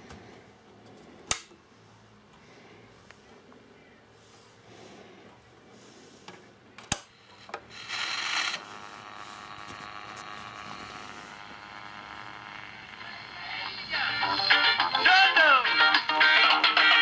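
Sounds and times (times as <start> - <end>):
radio hissing and buzzing: 7.0 - 15.6.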